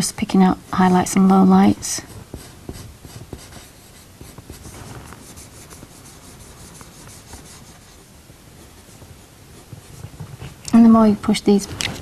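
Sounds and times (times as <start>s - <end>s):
pencil scratching on paper: 1.9s - 8.0s.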